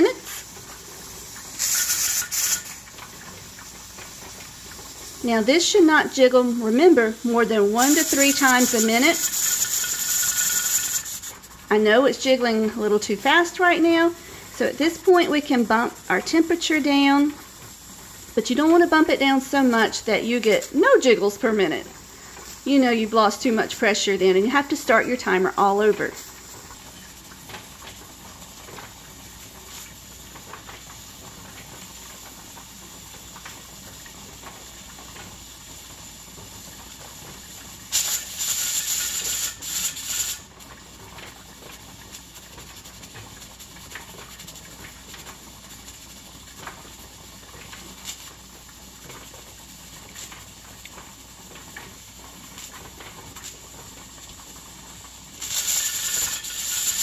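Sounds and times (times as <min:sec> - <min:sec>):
steam hissing from pressure canner: 0:00.0 - 0:57.0.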